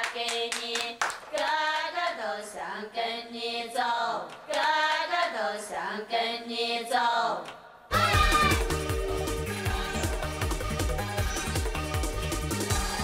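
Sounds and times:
voices singing together: 0.0 - 13.0
music with heavy beat: 7.9 - 13.0.

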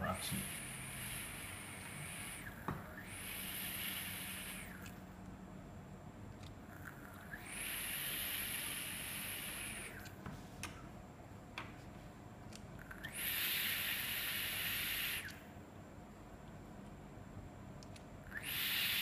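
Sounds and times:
e-liquid sizzling hiss: 3.1 - 4.8, 7.4 - 10.0, 13.1 - 15.3, 18.4 - 19.0.

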